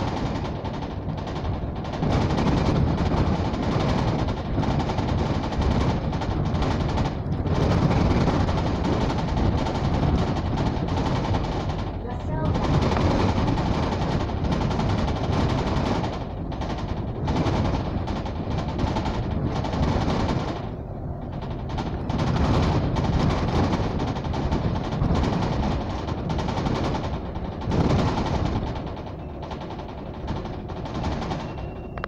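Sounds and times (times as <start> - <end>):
dense rapid rattling: 0.0 - 32.0
low bus rumble: 0.0 - 32.0.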